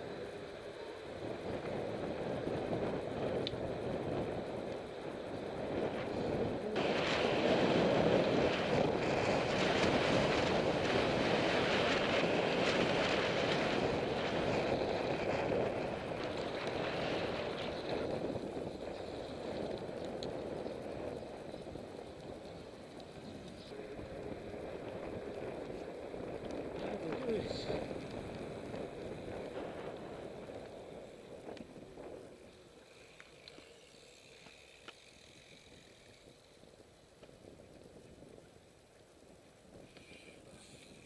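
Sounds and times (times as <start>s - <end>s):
wind rushing over microphone: 1.0s - 32.6s.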